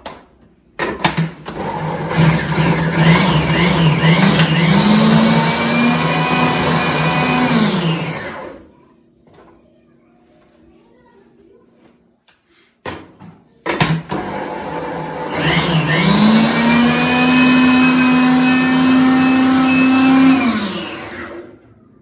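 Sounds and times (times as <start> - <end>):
blender motor running: 1.5 - 8.6, 14.1 - 21.6.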